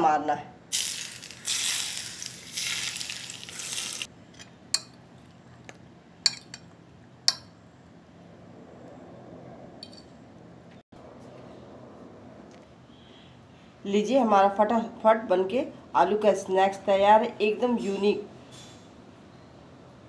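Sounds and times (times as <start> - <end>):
hot oil sizzling: 0.7 - 4.1.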